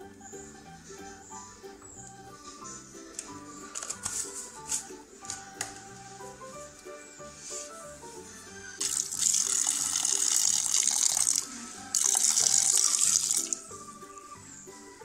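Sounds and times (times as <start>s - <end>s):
water pouring into a pot: 8.8s - 13.6s.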